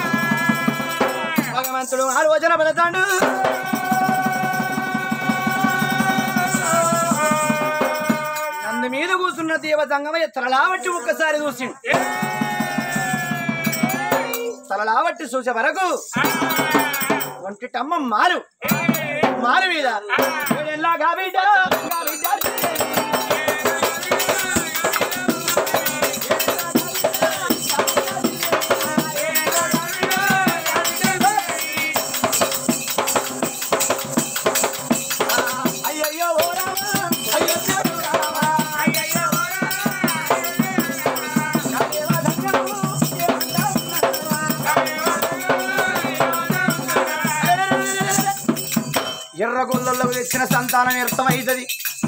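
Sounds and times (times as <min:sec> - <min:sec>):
voices singing folk music: 0:00.0 - 0:02.3, 0:02.9 - 0:09.0, 0:10.8 - 0:14.8, 0:16.1 - 0:17.6, 0:18.5 - 0:33.1, 0:34.1 - 0:48.7
fast jingling percussion: 0:00.0 - 0:52.0
barrel drum: 0:16.2 - 0:17.4, 0:21.7 - 0:52.0.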